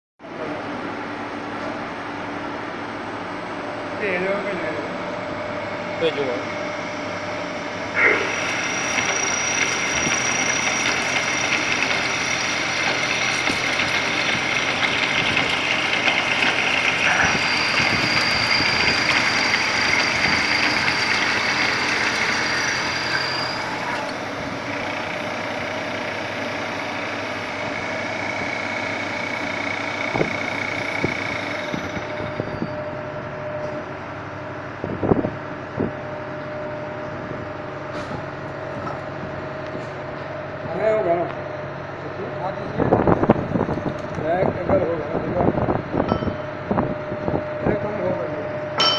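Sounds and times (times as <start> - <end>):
drill machine whining: 6.0 - 33.0.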